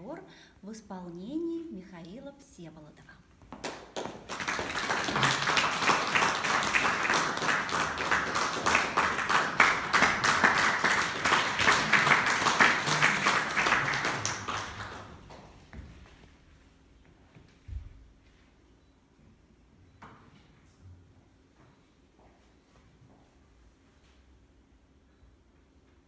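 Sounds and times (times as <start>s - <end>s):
audience applauding: 3.6s - 15.5s.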